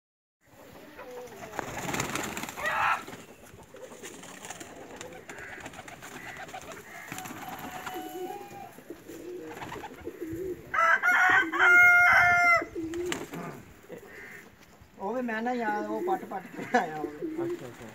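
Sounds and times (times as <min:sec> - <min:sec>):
pigeons cooing: 0:00.4 - 0:14.6, 0:15.6 - 0:17.9
loud pitched pigeon call: 0:00.4 - 0:14.7.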